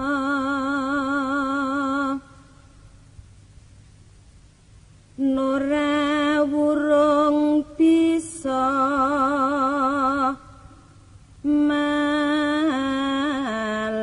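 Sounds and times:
person singing long notes: 11.4 - 14.0.

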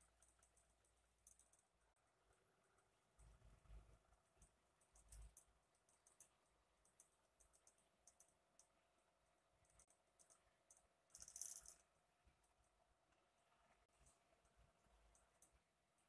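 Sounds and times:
faint clicks: 4.4 - 8.8.

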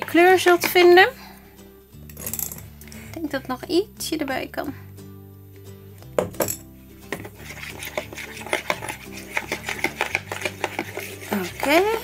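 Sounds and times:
background music: 0.0 - 12.0
spoon scraping plastic bowl: 7.0 - 12.0.

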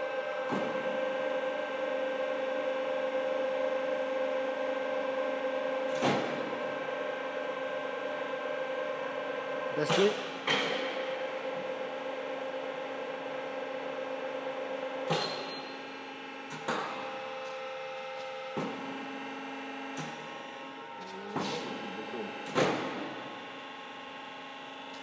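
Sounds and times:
electric drive humming: 18.8 - 24.8.

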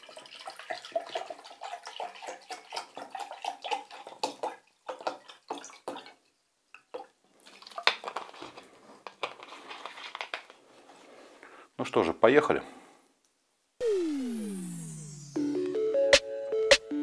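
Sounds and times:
water pouring into a jug: 0.0 - 6.2.

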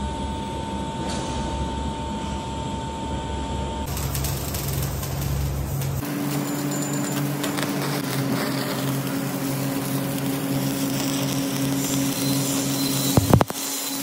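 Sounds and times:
welding arc crackling: 3.8 - 14.0.

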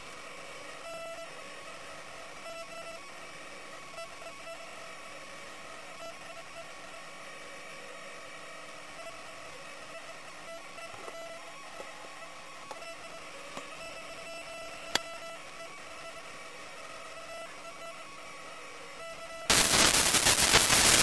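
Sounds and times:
faint steady tones: 0.0 - 21.0
buzzy chattering interference: 0.1 - 21.0
steady hiss: 19.5 - 21.0.

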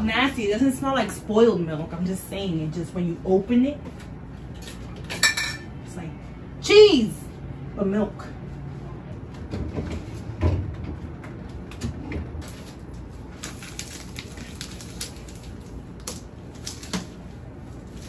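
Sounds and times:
items clattering on fridge shelves: 9.3 - 14.0.

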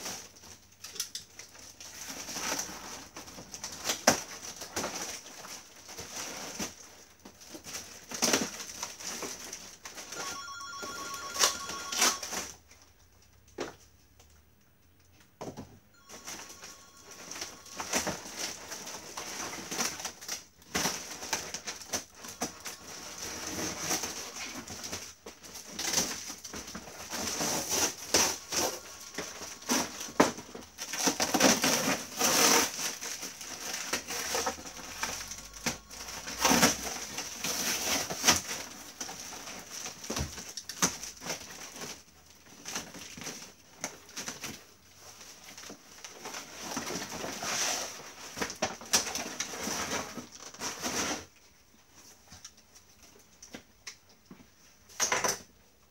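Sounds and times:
plastic and paper rustling: 0.0 - 13.0, 16.0 - 55.5
faint high-pitched whine: 15.4 - 39.3
cardboard crumpling: 16.0 - 51.4
packing tape ripping: 25.5 - 42.0.

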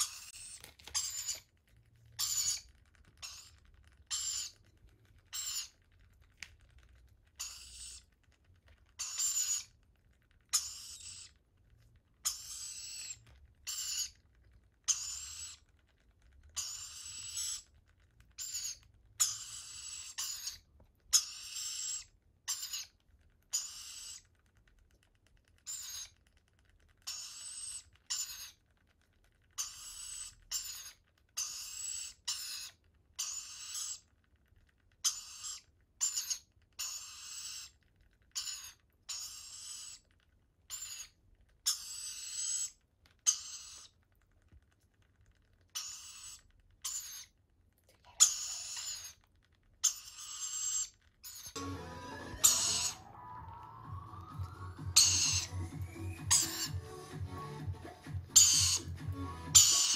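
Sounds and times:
chicks hissing begging calls: 51.6 - 59.9.

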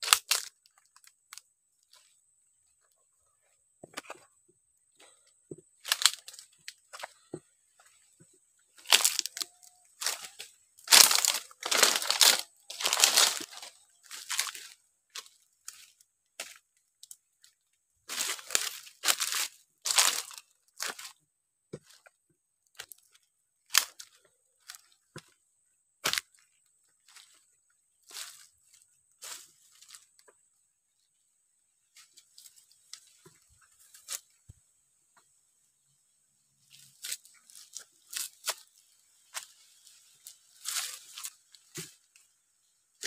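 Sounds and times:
dry leaves crunching and rustling: 0.0 - 1.4, 5.8 - 7.3, 8.7 - 17.2, 18.1 - 21.2, 22.8 - 25.4, 26.0 - 30.2, 36.7 - 42.4
twigs snapping: 0.0 - 1.4, 5.8 - 7.2, 8.8 - 17.2, 18.1 - 21.1, 23.7 - 24.9.

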